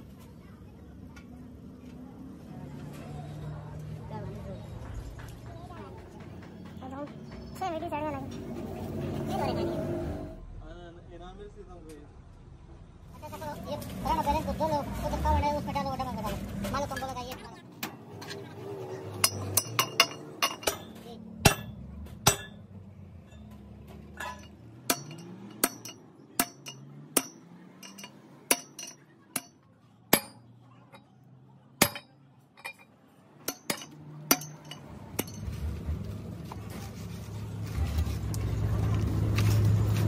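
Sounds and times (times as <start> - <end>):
metal-on-metal strikes: 19.2 - 31.1, 31.8 - 35.6.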